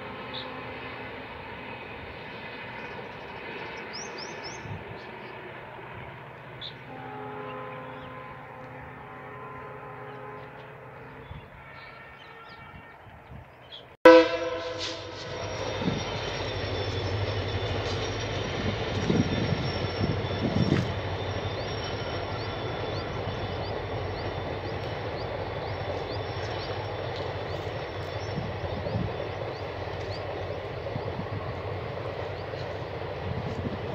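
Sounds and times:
train rumbling past: 0.0s - 33.9s
diesel locomotive horn blast: 6.9s - 13.4s, 14.0s - 16.2s
train wheels clattering on track: 14.8s - 33.9s.

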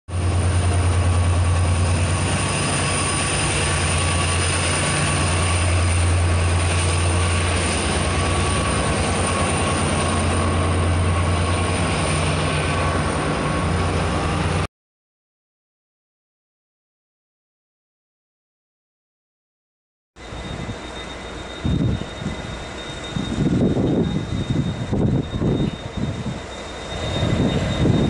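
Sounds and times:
diesel locomotive idling: 0.1s - 14.7s, 20.2s - 28.0s.

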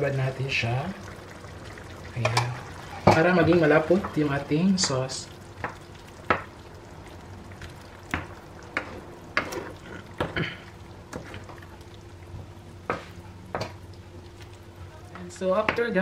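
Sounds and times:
low steady hum: 0.0s - 16.0s
wooden spoon stirring thick sauce: 2.2s - 10.4s, 11.0s - 16.0s.

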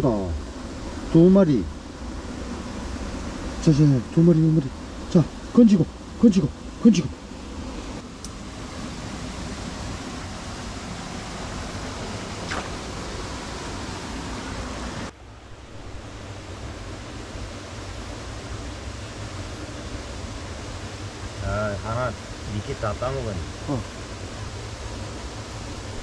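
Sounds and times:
stream water running over rocks: 8.0s - 26.0s.

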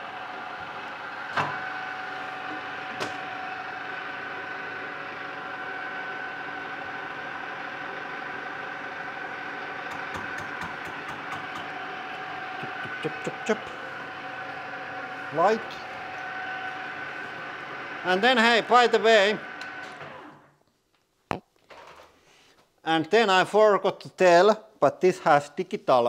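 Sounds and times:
lathe gear whine: 0.0s - 20.5s.

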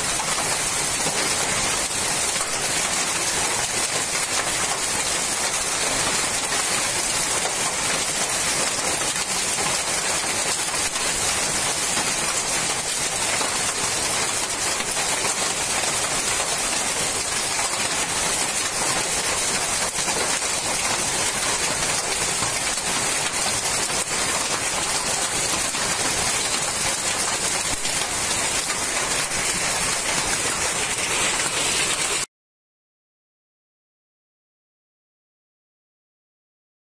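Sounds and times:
hail and heavy rain: 0.0s - 32.3s.

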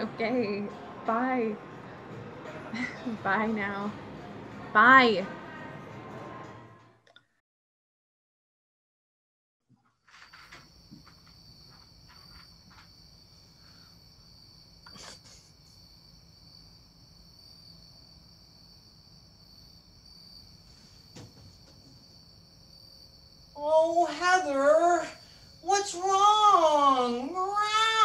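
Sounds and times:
soft knocks or rustles: 20.7s - 22.0s.

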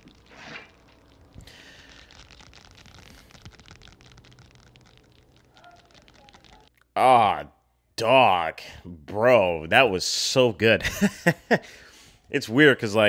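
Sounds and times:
soft scratching and crackling: 0.0s - 6.8s.

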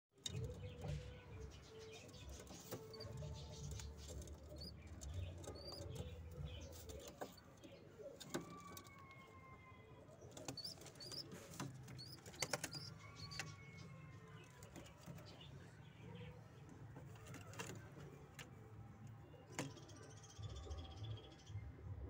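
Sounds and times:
pigeons murmuring: 0.5s - 8.5s.

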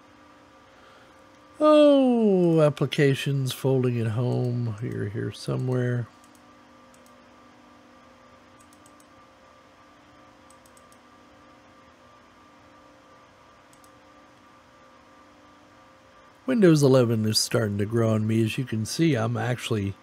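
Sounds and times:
faint steady hum: 0.0s - 20.0s
computer mouse clicking: 4.3s - 7.2s, 8.6s - 9.1s, 10.4s - 11.0s, 13.7s - 14.0s.

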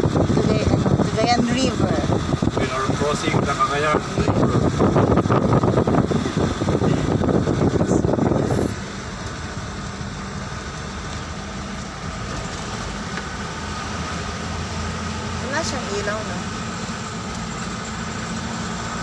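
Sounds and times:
wind buffeting microphone: 0.0s - 8.8s
engine and road hum: 0.0s - 19.0s.

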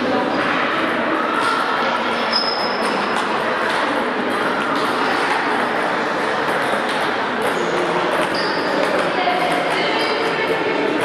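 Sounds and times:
table tennis balls clicking: 2.8s - 11.0s.

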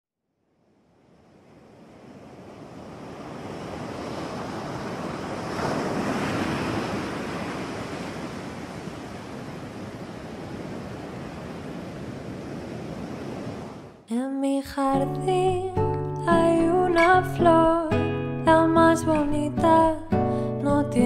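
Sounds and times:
surf washing on rocky shore: 1.2s - 14.0s.

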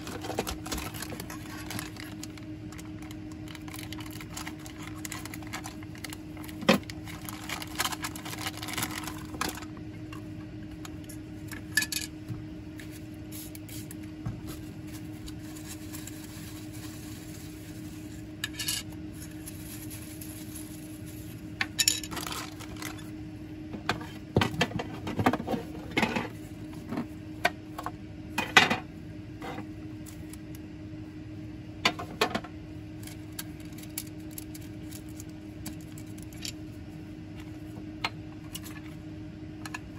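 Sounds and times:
plastic bag rustling: 0.0s - 9.7s, 13.8s - 18.4s, 19.1s - 23.1s
steady low hum: 0.0s - 39.9s.

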